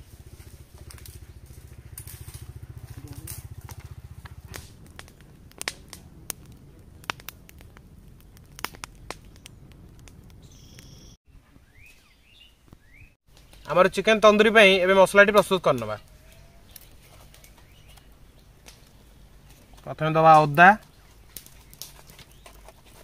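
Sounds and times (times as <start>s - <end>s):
low rhythmic rumble: 0.0s - 10.5s
wood fire crackling: 0.0s - 11.2s, 12.6s - 23.0s
sharp pops: 3.2s - 11.1s.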